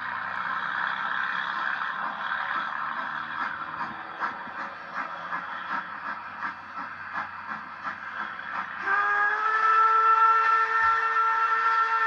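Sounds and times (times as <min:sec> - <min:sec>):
steam locomotive chuffing: 0:00.0 - 0:12.0
chime steam whistle: 0:08.8 - 0:12.0.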